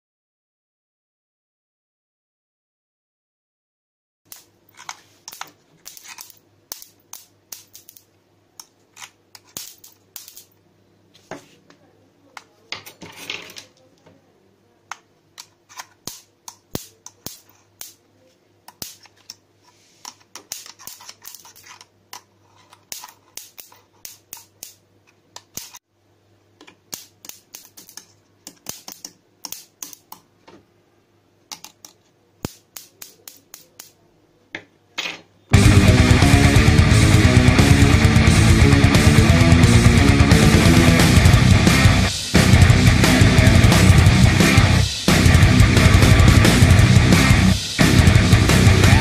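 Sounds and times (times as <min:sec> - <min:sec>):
electric sparks crackling: 0:05.3 - 0:08.1, 0:09.4 - 0:10.5, 0:40.3 - 0:49.0.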